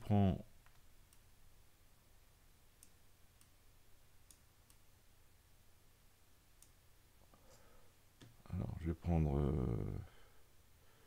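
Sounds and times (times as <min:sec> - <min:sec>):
computer mouse clicks: 0:00.6 - 0:01.3, 0:06.6 - 0:06.8.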